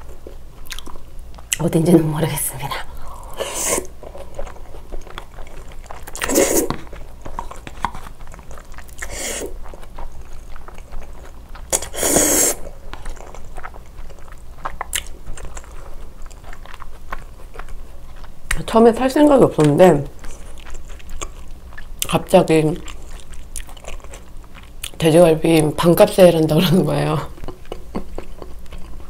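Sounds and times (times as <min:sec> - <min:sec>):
wet chewing clicks: 0:00.5 - 0:01.6, 0:03.8 - 0:29.0
person slurping noodles: 0:03.2 - 0:03.9, 0:06.2 - 0:06.9, 0:09.0 - 0:09.6, 0:11.7 - 0:12.7.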